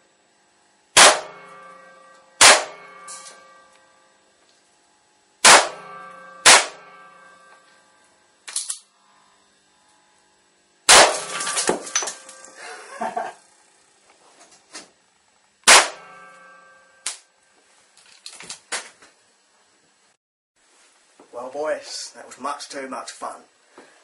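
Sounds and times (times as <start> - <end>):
electrical arc bangs: 0.9 - 4.1, 5.4 - 8.9, 10.8 - 13.4, 15.6 - 17.3
small cracks and clicks: 8.4 - 8.9.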